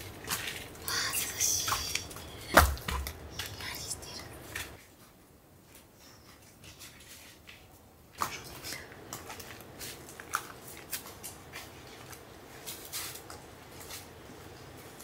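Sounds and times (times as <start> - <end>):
footsteps on loose rocks: 0.0 - 3.8.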